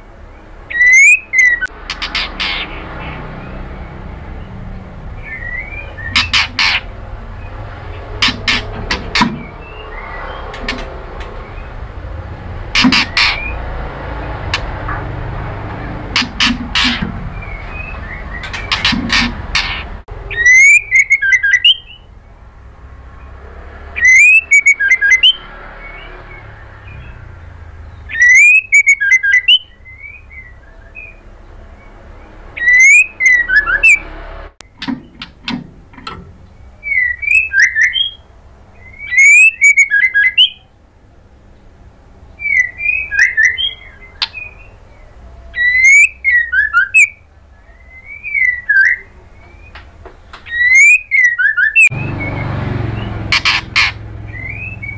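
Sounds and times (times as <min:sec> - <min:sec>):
bird whistling calls: 0:00.7 - 0:03.6, 0:05.2 - 0:06.9, 0:16.2 - 0:22.1, 0:24.0 - 0:27.2, 0:27.9 - 0:31.3, 0:32.6 - 0:34.0, 0:36.8 - 0:38.2, 0:38.8 - 0:40.7, 0:42.4 - 0:49.8, 0:50.4 - 0:54.9.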